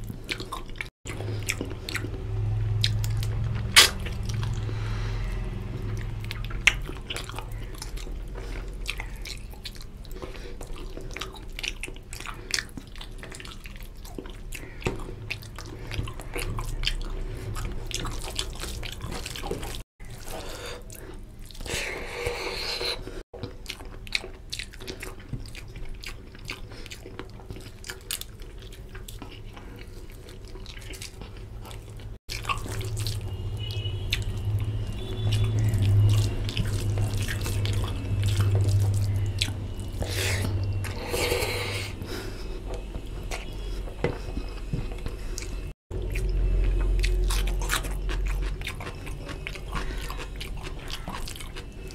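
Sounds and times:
chewing with lip smacks: 0.0 - 51.9
wet squelching of food mixed by hand: 0.0 - 51.9.

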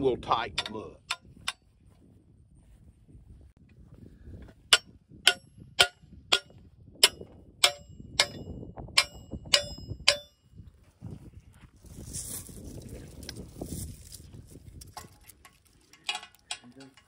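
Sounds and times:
hammer striking metal wedges: 4.7 - 10.4.

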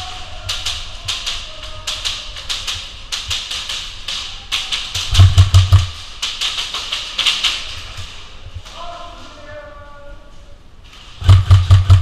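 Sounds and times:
airsoft gunfire echoing: 5.0 - 6.0, 11.2 - 12.0
heavy thumps: 5.0 - 6.7, 11.2 - 12.0.

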